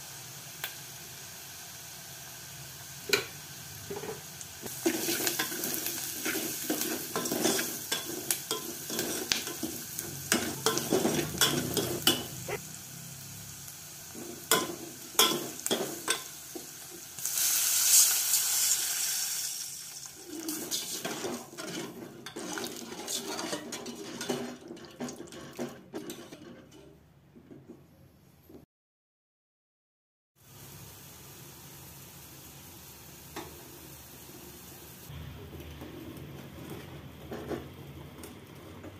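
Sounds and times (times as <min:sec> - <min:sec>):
water hissing in hot oil: 0:00.0 - 0:23.5, 0:30.4 - 0:36.3
oil sizzling: 0:00.0 - 0:26.8, 0:30.4 - 0:38.9
ladle stirring and scraping pot: 0:03.9 - 0:12.6, 0:20.1 - 0:27.7.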